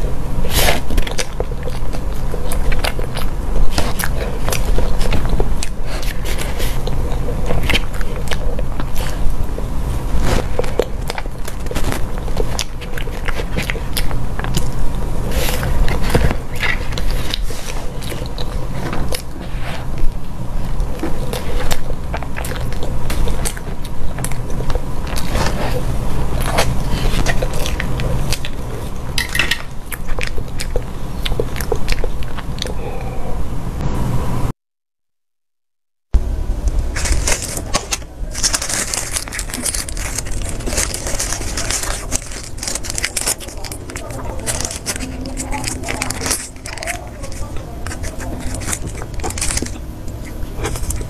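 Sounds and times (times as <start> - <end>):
wet chewing and lip-smacking: 0.0 - 33.0, 36.7 - 51.0
plastic spoon scraping plastic box: 37.0 - 51.0.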